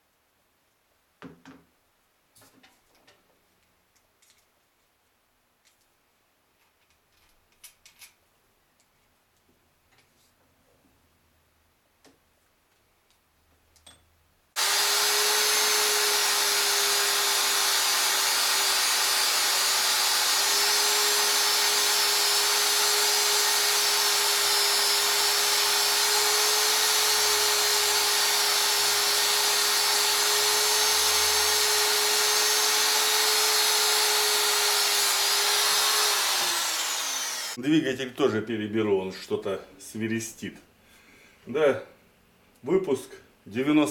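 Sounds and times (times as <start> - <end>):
abrasive bit grinding metal: 14.6 - 37.6
rotary tool whining: 14.6 - 37.6.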